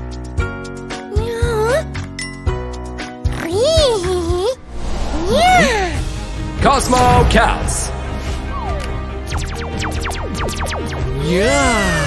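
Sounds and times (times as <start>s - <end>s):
background music: 0.0s - 12.0s
swooping tone: 4.6s - 6.1s.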